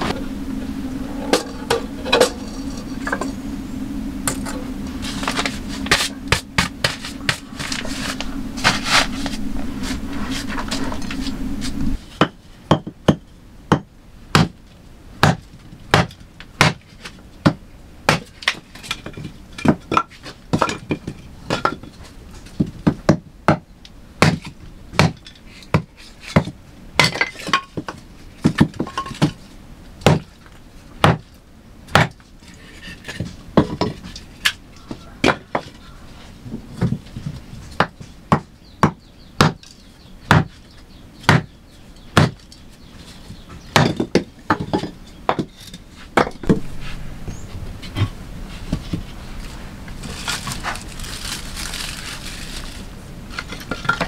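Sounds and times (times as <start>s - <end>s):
hand tool striking wood: 31.0s - 31.3s, 31.9s - 32.2s, 37.8s - 39.7s, 40.3s - 40.6s, 41.3s - 41.5s, 42.2s - 42.4s.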